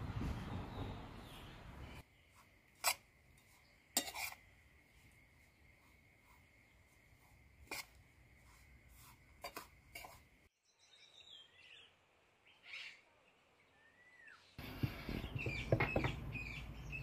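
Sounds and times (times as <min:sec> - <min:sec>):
metal spoon clinking enamel bowl: 0:03.9 - 0:04.4
faint bird chirps: 0:10.5 - 0:17.0.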